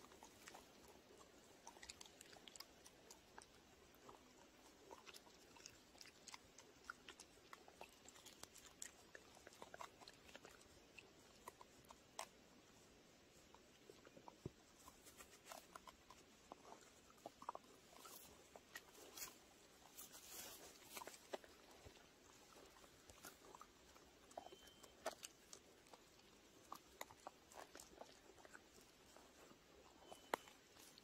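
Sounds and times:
dog chewing pine cone: 0:00.0 - 0:31.0.

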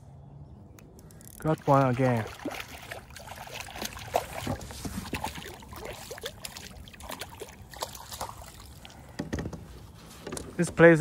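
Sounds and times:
water sloshing and dripping: 0:01.4 - 0:09.4
fish splashing at water surface: 0:01.5 - 0:09.0.

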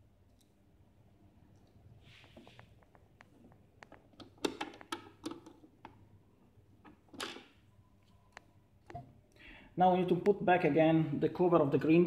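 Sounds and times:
plastic parts clicking and tapping: 0:02.7 - 0:06.1.

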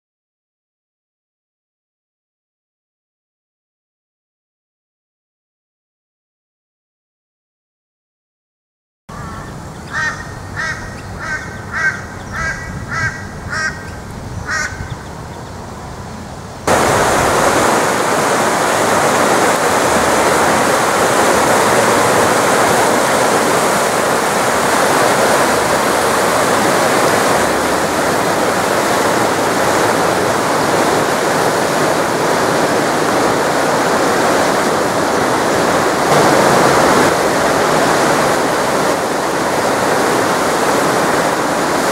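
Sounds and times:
bird calling: 0:09.1 - 0:16.3
floodwater rushing over rocks: 0:16.6 - 0:41.9.

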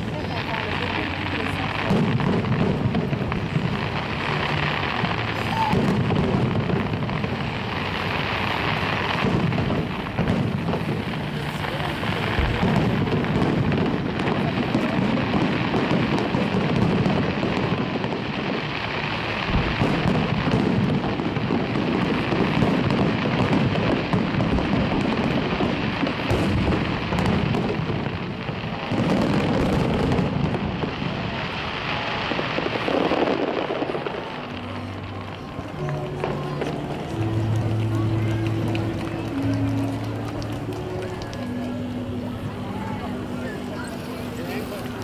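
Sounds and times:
sharp firework bangs: 0:00.0 - 0:38.3
fireworks bursting: 0:00.0 - 0:45.0.

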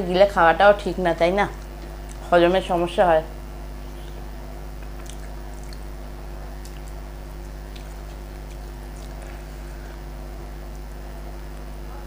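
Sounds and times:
steady low hum: 0:00.0 - 0:12.0
chewing: 0:03.8 - 0:10.0.

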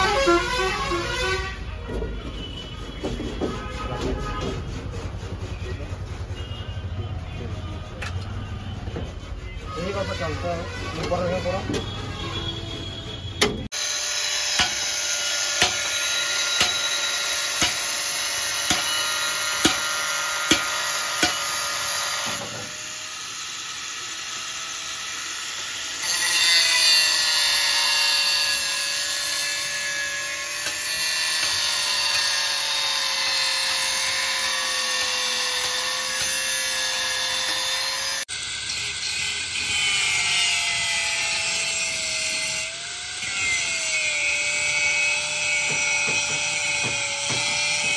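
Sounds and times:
angle grinder cutting sheet metal: 0:13.6 - 0:47.9.

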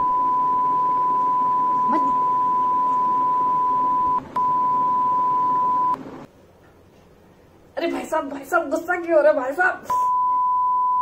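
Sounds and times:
censor bleep: 0:00.0 - 0:06.0, 0:09.9 - 0:11.0.

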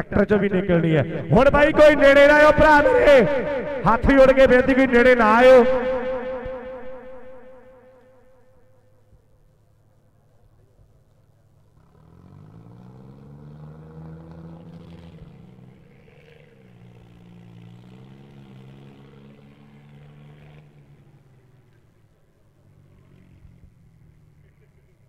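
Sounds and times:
tractor diesel engine revving: 0:00.0 - 0:08.0.

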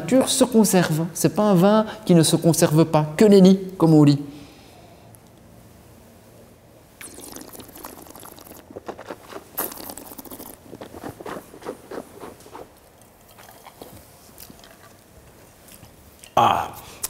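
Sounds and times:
person sipping and slurping wine: 0:07.0 - 0:15.0
wet mouth sounds and clicks: 0:07.0 - 0:15.0.

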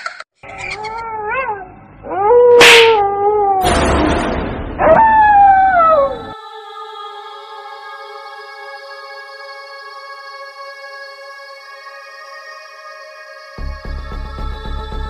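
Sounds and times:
dog howling: 0:00.9 - 0:03.7, 0:04.8 - 0:06.4.

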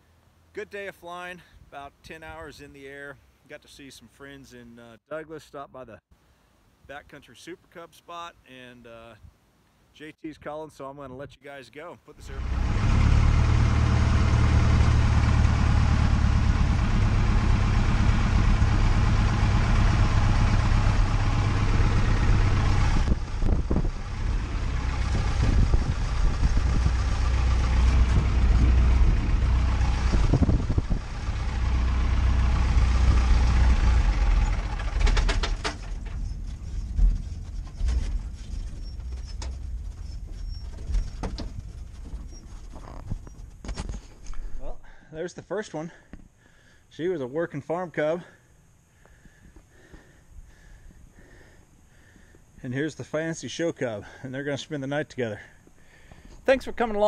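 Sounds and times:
small plane engine running: 0:12.2 - 0:42.7
clicks and rattles: 0:34.8 - 0:44.2.

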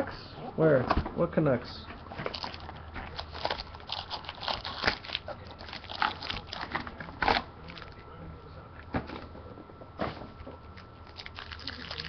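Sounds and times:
foil packs crinkling: 0:02.1 - 0:08.0, 0:11.0 - 0:12.0.

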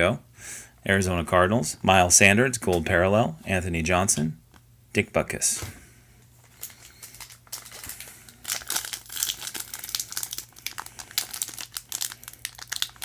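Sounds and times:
plastic wrapper crinkling: 0:06.4 - 0:13.0.

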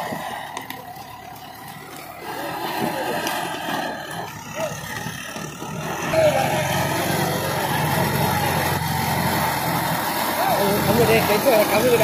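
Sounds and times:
diesel tractor engine under load: 0:00.0 - 0:12.0.

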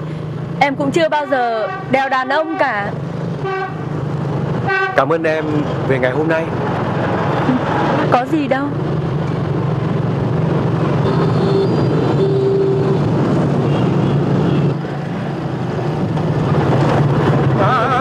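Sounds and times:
motorbike and car engines: 0:00.0 - 0:18.0
short steady tones: 0:11.0 - 0:13.0.

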